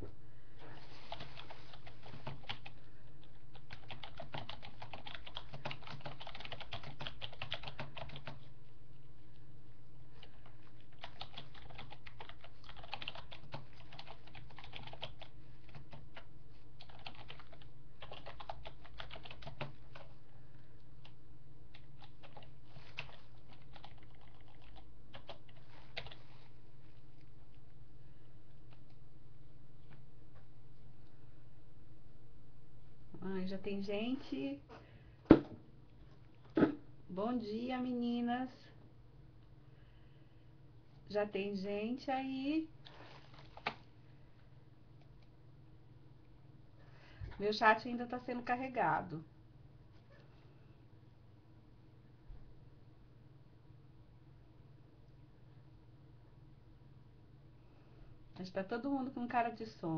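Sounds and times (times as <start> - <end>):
steady low hum: 0.0 - 59.9
computer keyboard typing: 1.1 - 8.5, 10.2 - 20.2, 21.0 - 26.2.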